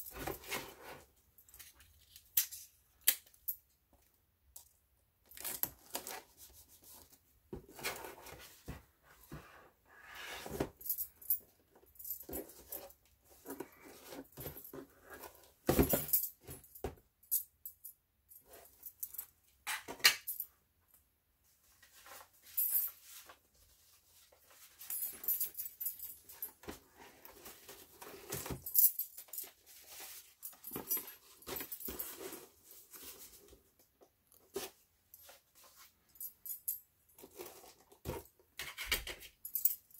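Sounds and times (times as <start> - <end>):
paper and cardboard rustling: 29.4 - 33.6.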